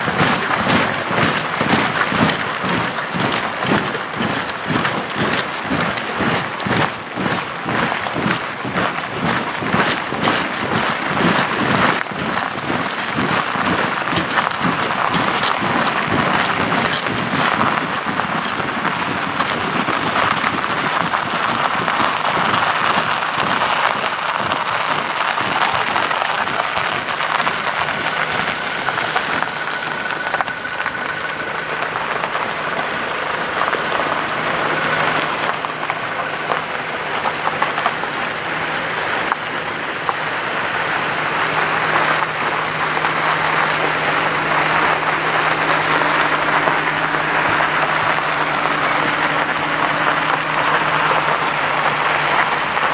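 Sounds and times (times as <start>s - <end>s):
boots marching on snow: 0.0s - 32.9s
faint vehicle engine hum: 0.0s - 52.9s.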